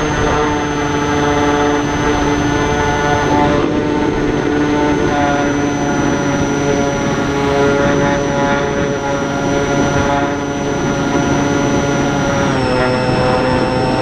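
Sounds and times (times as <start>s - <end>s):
motor and propeller whine: 0.0s - 14.0s
rough wind noise: 0.0s - 14.0s.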